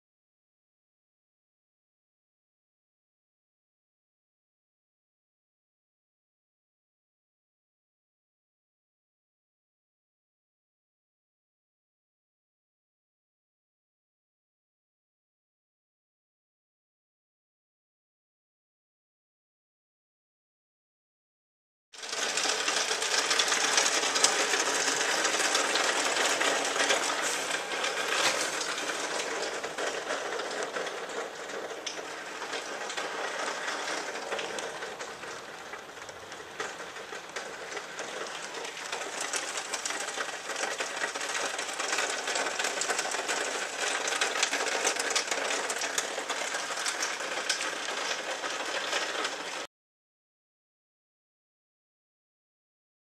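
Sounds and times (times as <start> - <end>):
heavy rain pattering: 22.0 - 49.7.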